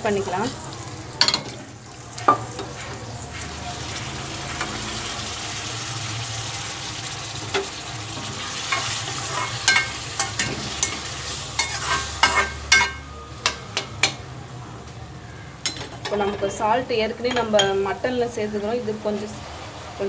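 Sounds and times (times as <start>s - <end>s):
liquid sizzling in a hot pan: 0.0s - 14.2s
steel spoon scraping a pan: 7.5s - 14.2s
spoon clinking on metal: 8.7s - 11.0s.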